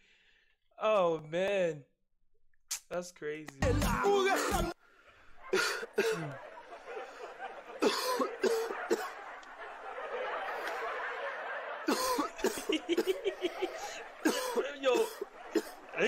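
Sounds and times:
bursts of laughter: 0:04.0 - 0:16.0
person coughing: 0:04.3 - 0:04.7, 0:05.6 - 0:06.4, 0:07.8 - 0:09.1, 0:11.9 - 0:13.2, 0:14.2 - 0:15.8.

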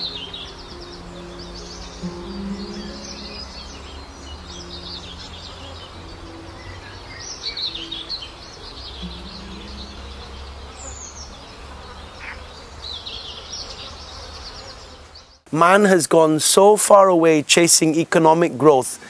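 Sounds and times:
small birds chirping: 0:00.0 - 0:15.5
low rumble: 0:09.0 - 0:12.2.

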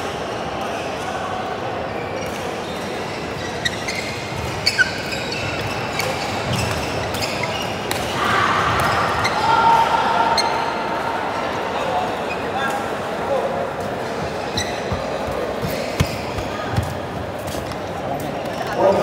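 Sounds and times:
sports hall hubbub: 0:00.0 - 0:19.0
shoes squeaking on court: 0:01.9 - 0:08.2, 0:13.8 - 0:19.0.

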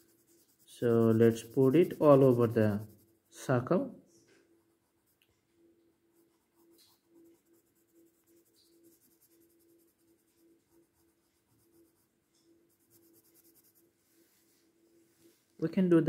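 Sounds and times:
pencil scratching on paper: 0:00.0 - 0:03.5, 0:04.6 - 0:05.2, 0:06.1 - 0:13.9.

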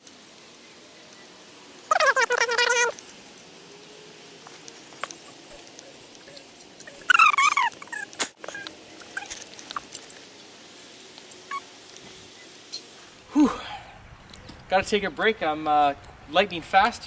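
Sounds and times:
animal cry: 0:01.9 - 0:03.0, 0:06.3 - 0:09.9, 0:11.5 - 0:11.7
garden rake scratching mulch: 0:01.9 - 0:12.4.

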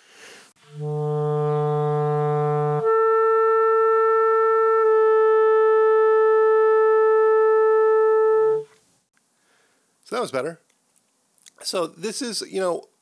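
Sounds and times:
clarinet long tone: 0:00.6 - 0:08.8.

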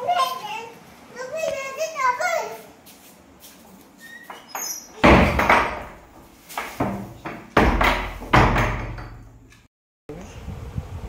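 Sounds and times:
wooden door banging: 0:04.3 - 0:09.4.

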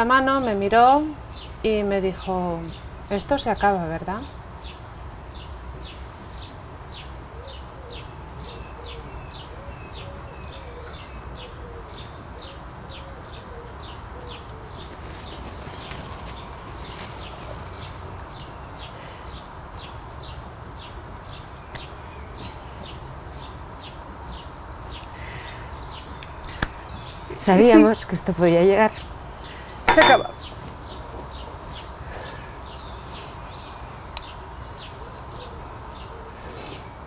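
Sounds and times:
low background hum: 0:24.9 - 0:36.3.

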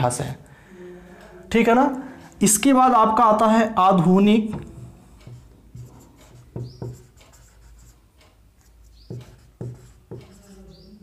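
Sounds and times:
marker squeaking on whiteboard: 0:04.5 - 0:11.0.

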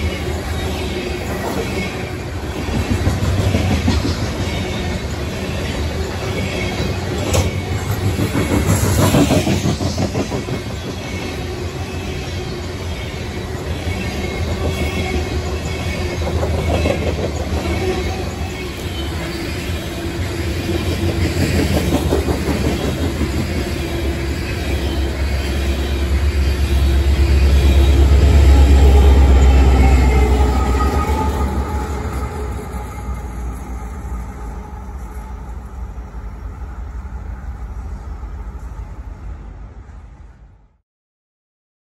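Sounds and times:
diesel locomotive engine rumble: 0:00.0 - 0:40.6
train wheel clatter: 0:06.2 - 0:11.3, 0:14.1 - 0:18.4, 0:20.6 - 0:24.3.

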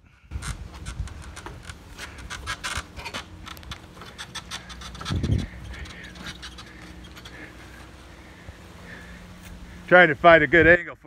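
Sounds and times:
boots on ladder rungs: 0:00.3 - 0:08.0.

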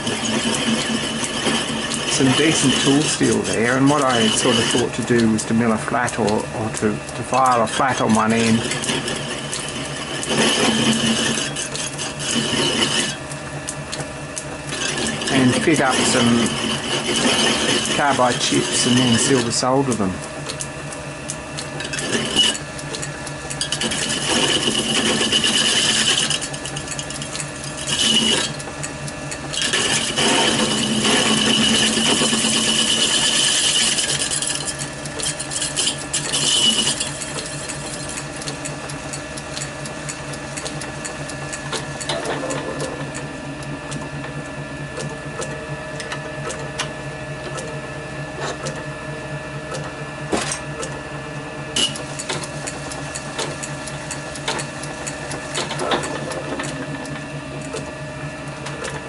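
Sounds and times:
lathe motor and belt hum: 0:00.0 - 0:59.0
high ringing squeal of metal plate: 0:35.5 - 0:37.1.

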